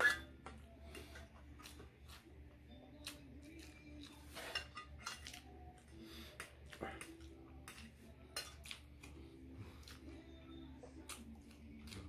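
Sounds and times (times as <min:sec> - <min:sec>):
clinks and scrapes on metal tray: 0:00.0 - 0:01.4, 0:04.2 - 0:05.4.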